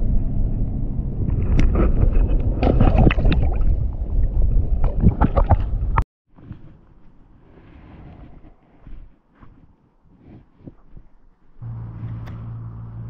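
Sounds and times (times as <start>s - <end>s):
wind buffeting microphone: 0.0s - 9.3s.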